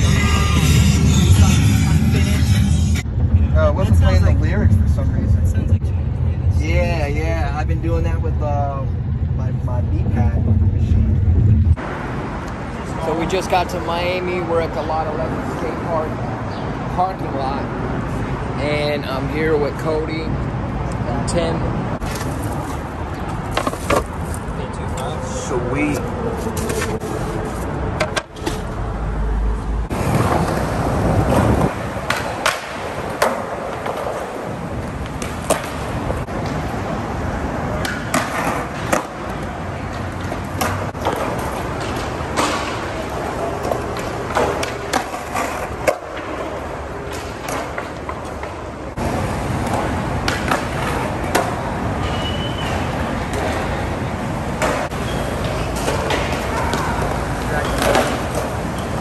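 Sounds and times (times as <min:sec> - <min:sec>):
skateboard wheels rolling on concrete: 0:00.0 - 0:59.0
skateboards popping and landing: 0:22.0 - 0:24.5, 0:29.9 - 0:59.0
skateboards knocking: 0:29.9 - 0:36.7, 0:37.7 - 0:53.8, 0:54.4 - 0:59.0.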